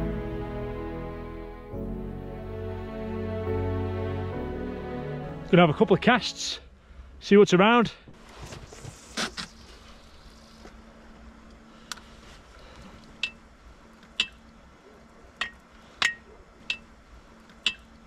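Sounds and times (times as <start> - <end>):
faint steady hum: 6.0 - 18.0.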